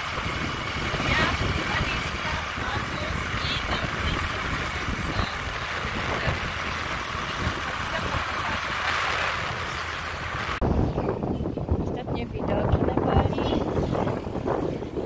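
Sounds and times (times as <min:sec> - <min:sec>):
scooter engine: 0:00.0 - 0:10.6
road noise: 0:00.0 - 0:15.0
wind rushing over microphone: 0:00.0 - 0:15.0.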